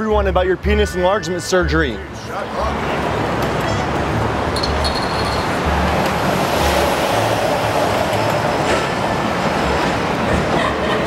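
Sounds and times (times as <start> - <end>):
loud rumbling noise: 5.6 - 11.0.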